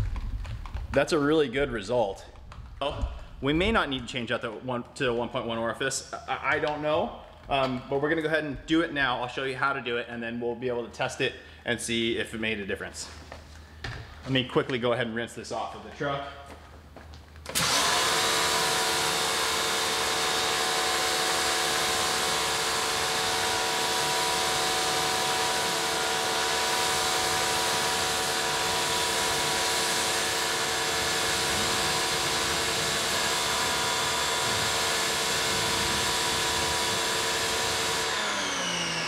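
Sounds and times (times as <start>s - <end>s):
pressure washer motor whine: 17.4s - 39.0s.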